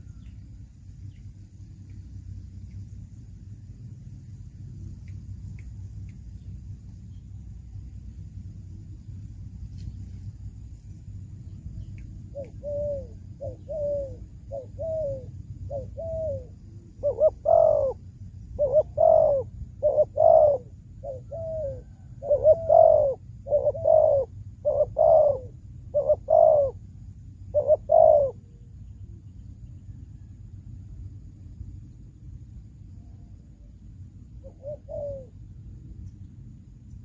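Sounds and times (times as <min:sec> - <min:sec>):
dove cooing: 0:12.2 - 0:26.8, 0:27.4 - 0:28.7, 0:34.3 - 0:35.5.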